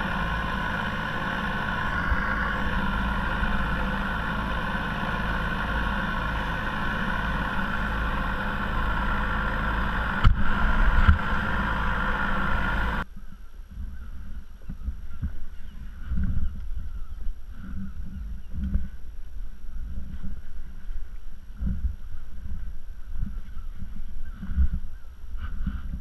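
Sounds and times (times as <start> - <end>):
water rushing along hull: 0.0 - 13.0
small motor droning: 0.0 - 13.1.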